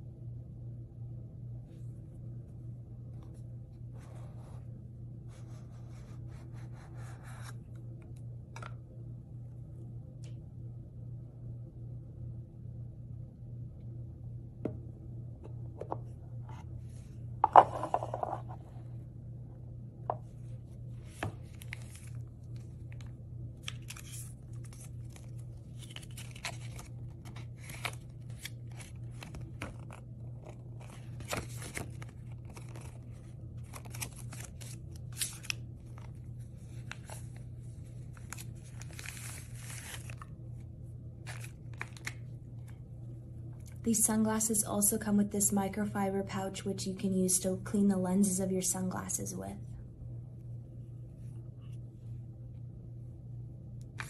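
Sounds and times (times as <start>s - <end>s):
steady low hum: 0.0s - 54.0s
paper rustling: 21.0s - 40.3s, 41.2s - 42.8s.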